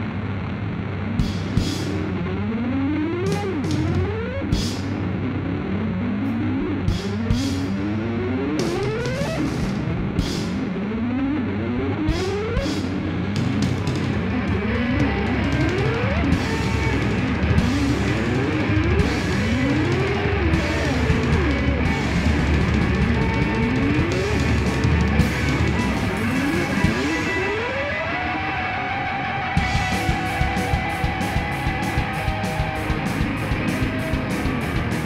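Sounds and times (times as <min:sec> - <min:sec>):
drum kit with cymbal hits: 0:01.2 - 0:02.1, 0:03.3 - 0:05.1, 0:06.7 - 0:07.9, 0:08.6 - 0:10.8, 0:12.0 - 0:27.6, 0:29.6 - 0:35.0
electric guitar sliding lines: 0:01.2 - 0:35.0.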